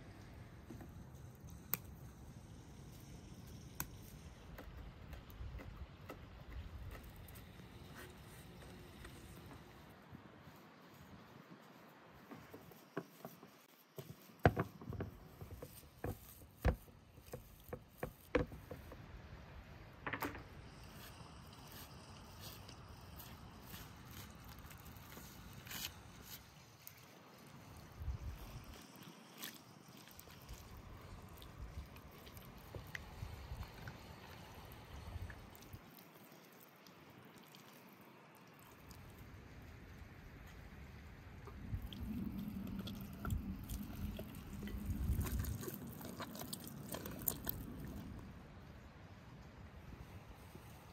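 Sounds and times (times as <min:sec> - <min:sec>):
wet squishing of hands on meat: 0:23.2 - 0:39.8, 0:41.5 - 0:48.2.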